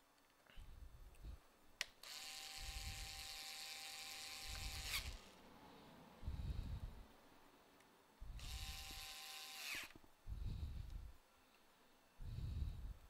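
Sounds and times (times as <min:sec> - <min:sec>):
electric screwdriver running: 0:02.0 - 0:05.4, 0:08.4 - 0:10.0.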